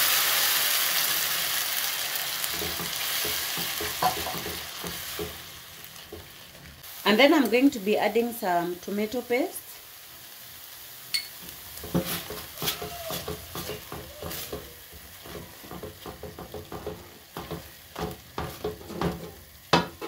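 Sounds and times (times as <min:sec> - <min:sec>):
faint sizzle: 0:00.0 - 0:20.0
spatula scraping a pan: 0:02.4 - 0:06.6, 0:11.4 - 0:20.0.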